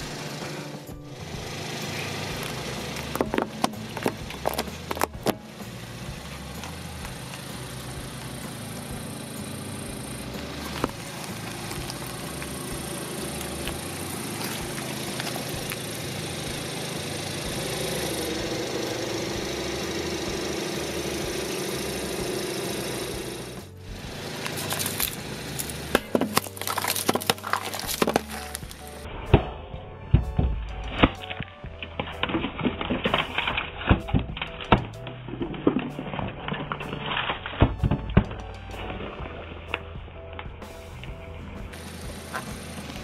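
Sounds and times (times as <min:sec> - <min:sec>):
car engine idling: 0:00.0 - 0:43.0
tyre crushing objects: 0:02.0 - 0:05.5, 0:09.8 - 0:16.8, 0:23.2 - 0:29.6.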